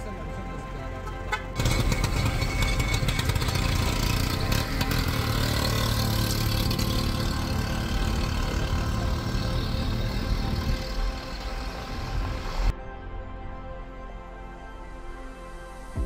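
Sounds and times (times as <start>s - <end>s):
vehicle engines droning: 0.0s - 12.7s.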